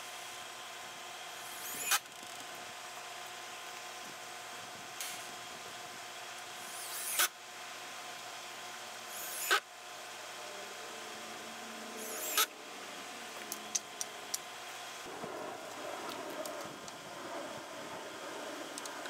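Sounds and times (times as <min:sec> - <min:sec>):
cordless drill driving screws: 0:12.0 - 0:12.5.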